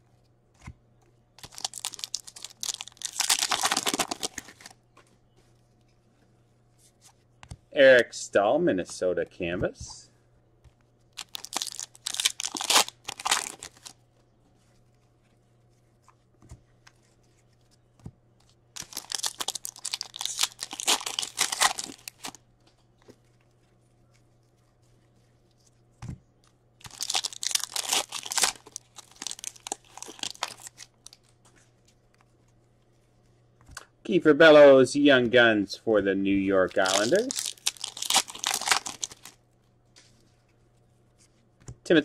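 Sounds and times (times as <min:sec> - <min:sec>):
foil wrappers tearing and crinkling: 0:01.4 - 0:04.8, 0:11.1 - 0:14.0, 0:18.8 - 0:22.4, 0:26.8 - 0:31.3, 0:36.6 - 0:39.4.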